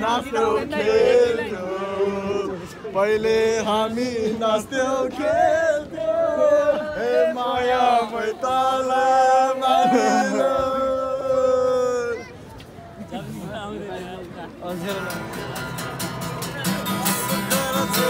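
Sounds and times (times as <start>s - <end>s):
men chanting in unison: 0.0s - 11.9s.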